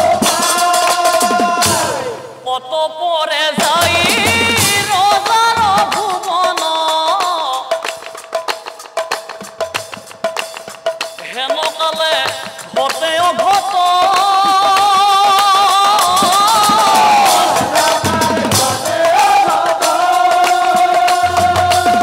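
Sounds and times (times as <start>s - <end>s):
percussion: 0.0s - 2.6s, 3.3s - 22.0s
man singing long held notes: 11.4s - 22.0s.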